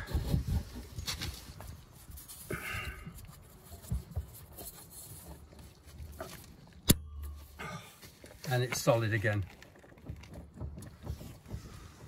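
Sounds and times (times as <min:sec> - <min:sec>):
faint knocks and handling noises: 0:03.2 - 0:12.0.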